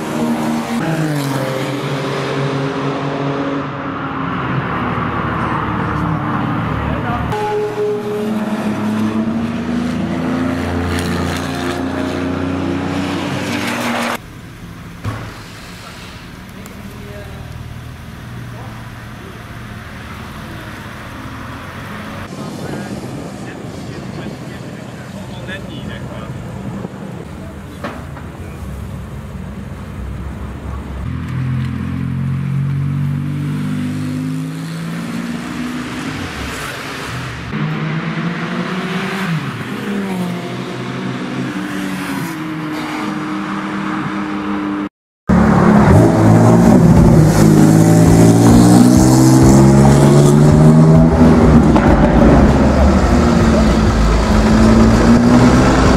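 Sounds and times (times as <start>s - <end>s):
car pulling away: 45.3s - 55.9s.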